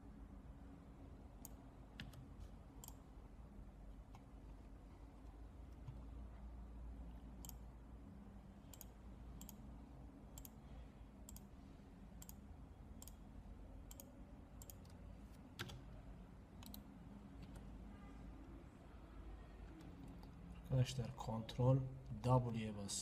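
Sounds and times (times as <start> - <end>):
faint low hum: 0.0 - 23.0
computer mouse clicking: 1.4 - 3.0, 7.4 - 7.6, 8.7 - 9.6, 10.3 - 10.6, 11.2 - 11.5, 12.2 - 12.4, 13.0 - 13.2, 13.8 - 15.8, 16.6 - 17.7.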